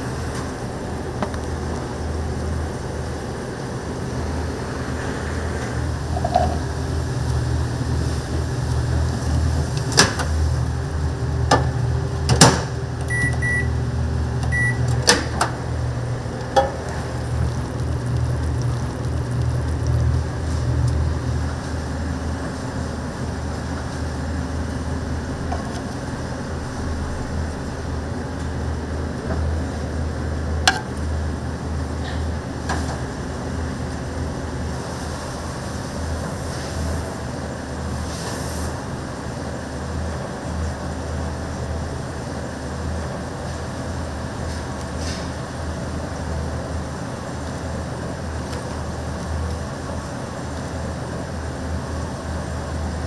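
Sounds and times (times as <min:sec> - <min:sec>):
kitchen equipment humming: 0:00.0 - 0:53.0
short electronic beeps: 0:14.5 - 0:14.8.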